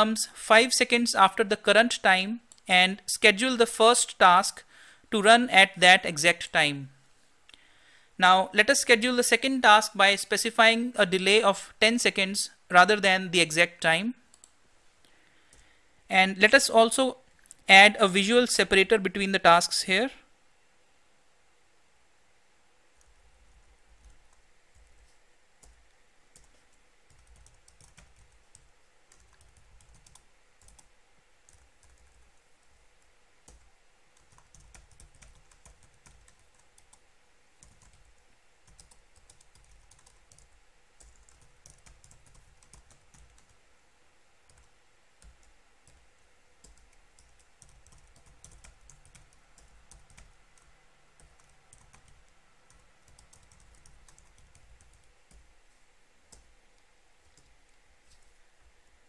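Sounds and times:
faint typing on keyboard: 2.5 - 2.7, 14.3 - 15.8, 17.3 - 17.7, 23.0 - 43.6, 44.4 - 55.6, 56.3 - 58.3.

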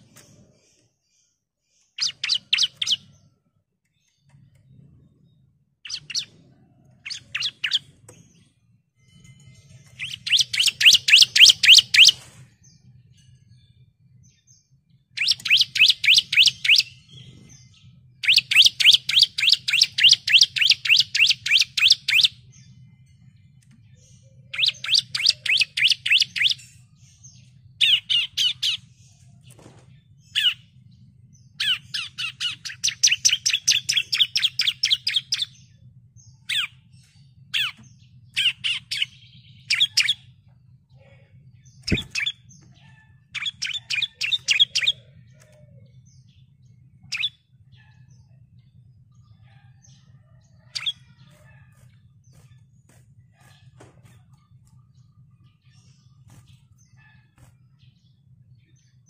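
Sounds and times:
bird high chirping song: 0.0 - 59.0
faint low hum: 19.9 - 59.0.

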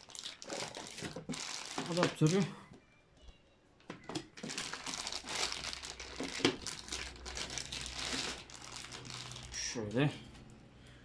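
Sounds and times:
plastic bag crinkling: 0.0 - 2.6, 4.3 - 9.9.

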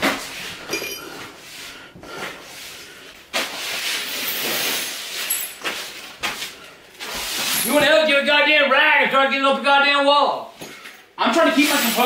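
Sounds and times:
ceramic shard clink: 0.7 - 1.1
broom sweeping shards on wood: 3.3 - 7.8, 11.5 - 12.0.

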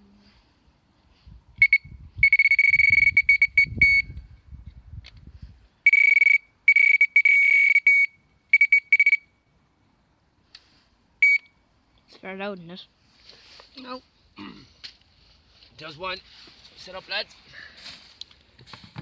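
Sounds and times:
electronic bite alarm beeping: 1.6 - 4.2, 5.8 - 9.4, 11.2 - 11.5.

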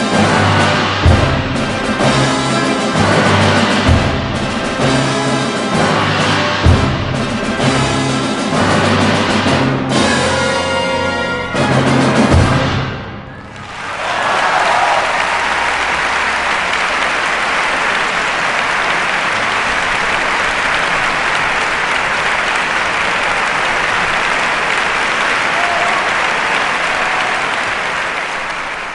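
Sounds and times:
audience applauding: 13.4 - 28.9.

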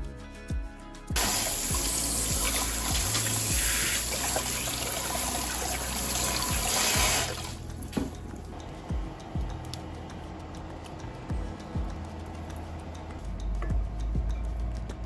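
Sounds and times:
water splashing over sausages: 1.2 - 7.6.

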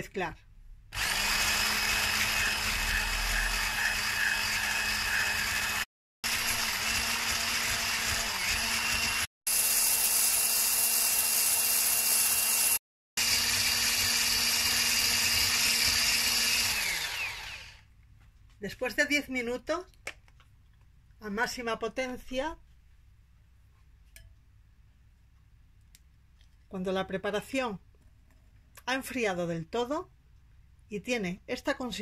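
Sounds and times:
electric hand mixer whirring: 1.0 - 17.8.

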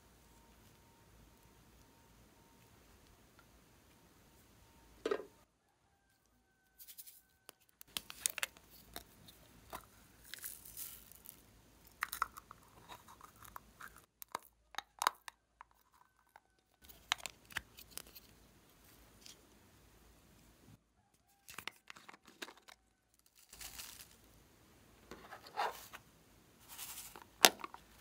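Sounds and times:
plastic container clicks and crackles: 7.5 - 11.3, 11.9 - 18.3, 21.5 - 22.8, 27.1 - 27.9.

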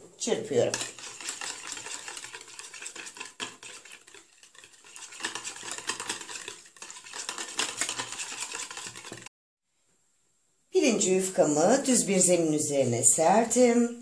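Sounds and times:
whisk rattling in plastic bowl: 0.5 - 9.3.

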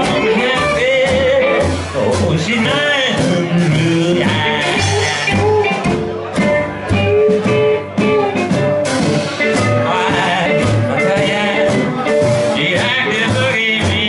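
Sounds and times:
drum kit: 0.0 - 14.0
strummed acoustic guitar: 0.0 - 14.0
upright bass: 0.0 - 14.0
electric guitar lines: 3.2 - 13.8.

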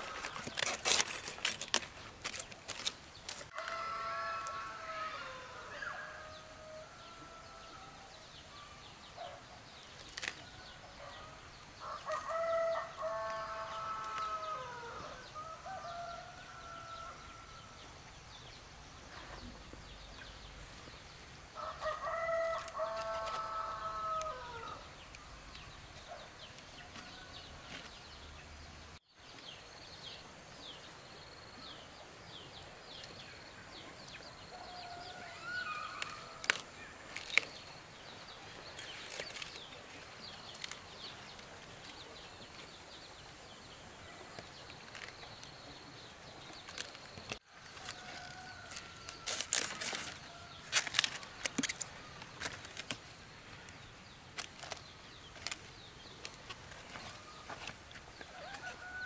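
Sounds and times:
rooster crowing: 3.5 - 8.1, 11.8 - 17.7, 21.6 - 24.8, 58.3 - 59.0.

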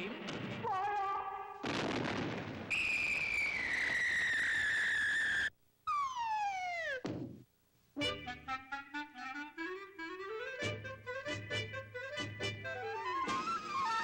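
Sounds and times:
cartoon cannon blast: 1.6 - 3.3
falling whistle: 2.7 - 7.0, 12.9 - 14.0.

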